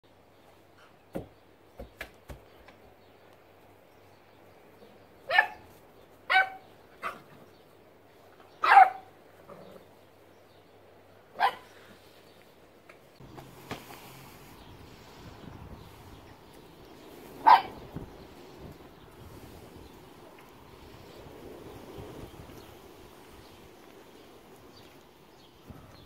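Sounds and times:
puppy barking: 0:05.3 - 0:05.7, 0:06.3 - 0:07.3, 0:08.6 - 0:09.1, 0:11.4 - 0:11.7, 0:17.4 - 0:17.8.

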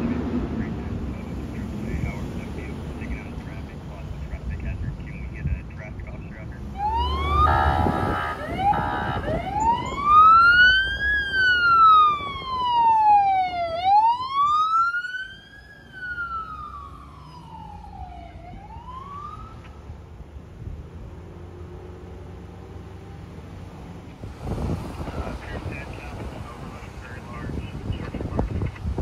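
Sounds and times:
siren yelping and wailing: 0:06.6 - 0:19.8
short horn blasts: 0:07.4 - 0:09.4.

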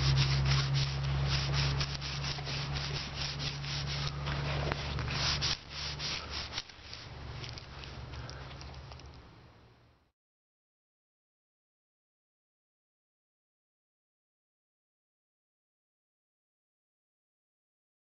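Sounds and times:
hands rubbing rubber inner tube: 0:00.0 - 0:07.9
low steady hum: 0:00.0 - 0:10.1.

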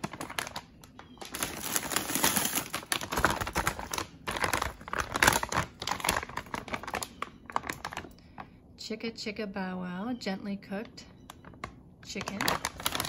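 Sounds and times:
plastic pouches crinkling: 0:00.0 - 0:08.6, 0:11.3 - 0:13.0.

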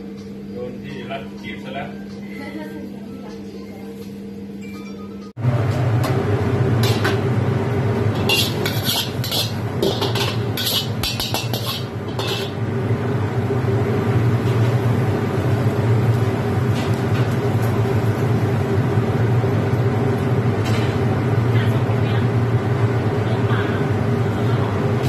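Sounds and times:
gas burner rumbling: 0:05.4 - 0:25.0
ladle scraping a wok: 0:08.1 - 0:12.6.

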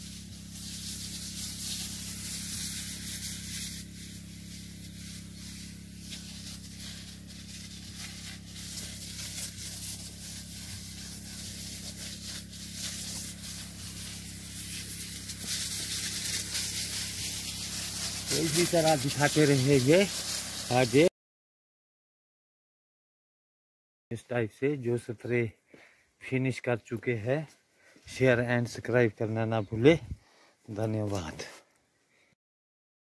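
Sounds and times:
low hum: 0:00.0 - 0:18.9
spray gun hissing: 0:00.0 - 0:21.1.

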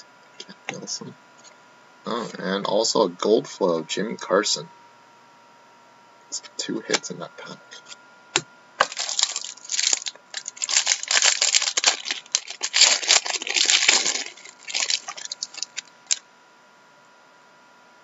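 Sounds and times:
foil wrapper crinkling and tearing: 0:08.8 - 0:16.2.

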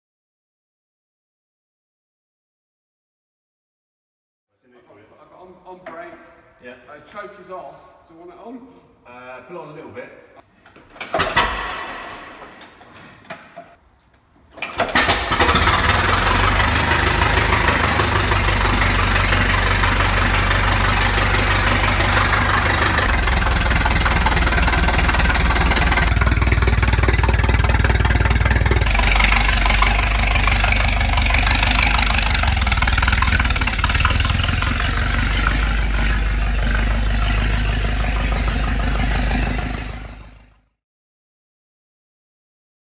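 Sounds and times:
old car engine hand cranked: 0:14.5 - 0:36.2
engine running with low pulsing beat: 0:15.9 - 0:40.2.

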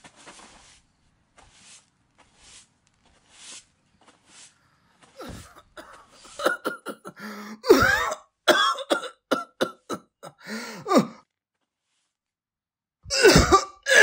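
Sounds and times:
person coughing harshly: 0:05.2 - 0:11.2, 0:13.1 - 0:14.0
throat clearing: 0:05.2 - 0:11.2.

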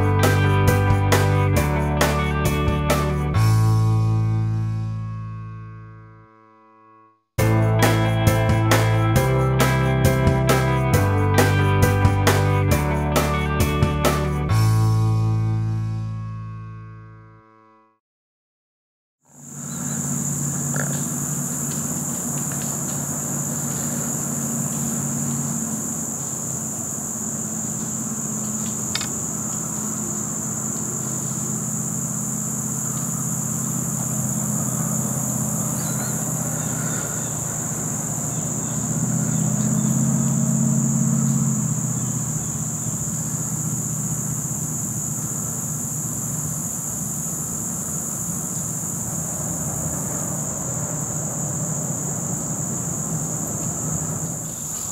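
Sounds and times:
insect chorus chirring: 0:19.3 - 0:54.9
low engine drone: 0:19.3 - 0:54.9
sharp click: 0:28.6 - 0:29.2.

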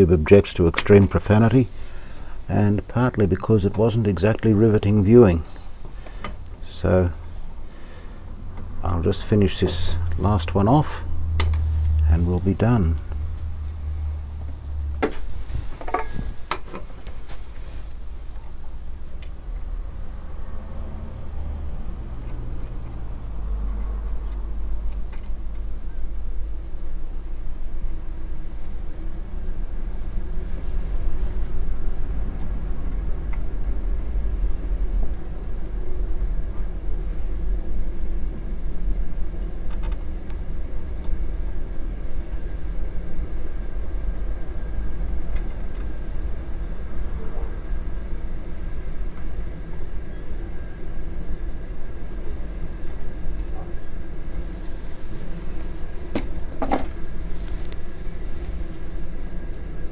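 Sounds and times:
steady low rumble: 0:00.0 - 0:59.9
storm wind buffeting shed: 0:08.3 - 0:18.0.

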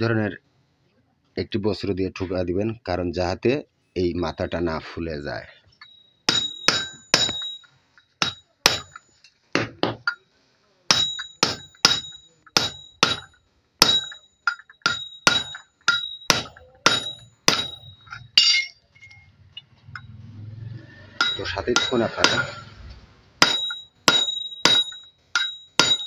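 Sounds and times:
metal clink: 0:05.8 - 0:09.4, 0:10.9 - 0:20.2, 0:21.2 - 0:22.7, 0:23.4 - 0:26.0
hammer tapping metal tube: 0:06.3 - 0:10.2, 0:10.9 - 0:18.7, 0:21.2 - 0:22.6, 0:23.4 - 0:26.0.

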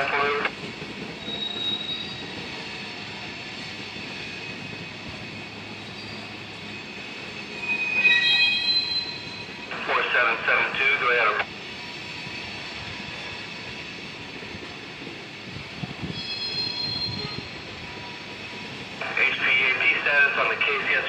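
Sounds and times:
train wheels rumbling on rail: 0:00.0 - 0:21.0
high wheel squeal: 0:01.2 - 0:09.7, 0:16.0 - 0:18.7.

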